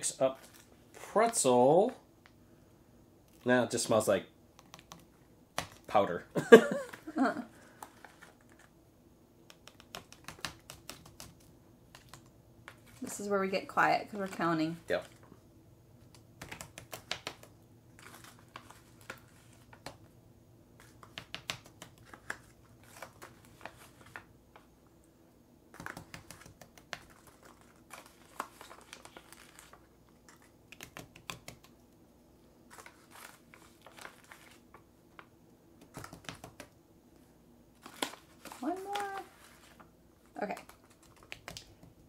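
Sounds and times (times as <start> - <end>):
paper rustling: 0.3 - 1.4, 6.7 - 8.7, 9.6 - 13.3, 16.1 - 20.1, 20.8 - 24.7, 25.7 - 31.8, 32.7 - 36.7, 37.8 - 41.8.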